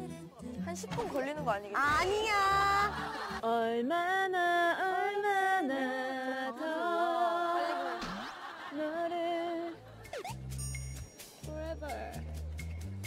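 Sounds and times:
young women singing a cappella: 1.8s - 9.9s.

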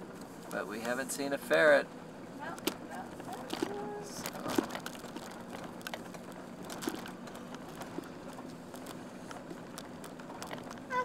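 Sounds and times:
van engine hum: 0.0s - 11.0s
clicks and light rattles: 2.4s - 11.0s.

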